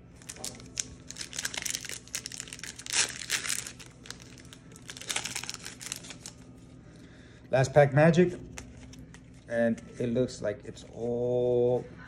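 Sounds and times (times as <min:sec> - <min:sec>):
plastic wrapper crinkling: 0:00.1 - 0:06.6.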